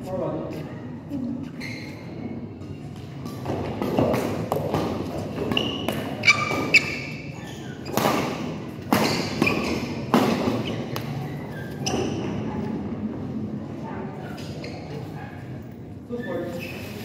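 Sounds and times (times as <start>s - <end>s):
sneaker squeaks: 0.6s - 12.6s, 14.2s - 15.5s, 16.1s - 17.0s
footfalls on court floor: 3.0s - 7.2s.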